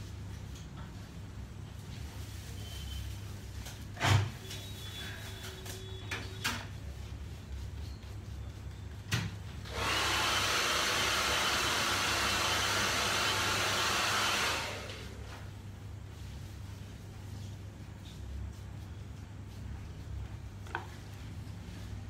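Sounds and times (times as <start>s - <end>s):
hair dryer blowing: 9.6s - 15.3s.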